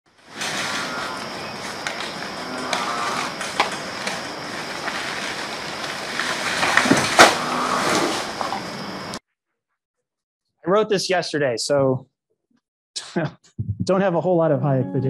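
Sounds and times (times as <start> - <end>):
sharp rustles or knocks: 0.3 - 8.8
steady high tone: 13.8 - 15.0.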